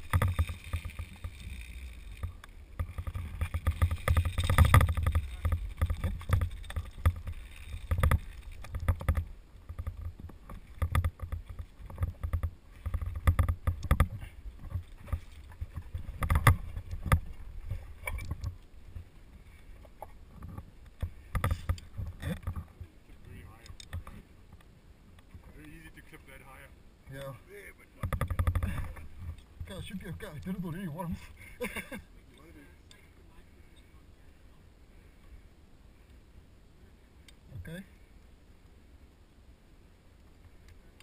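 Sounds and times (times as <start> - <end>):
climbing gear knocking and clinking: 0.0 - 18.5.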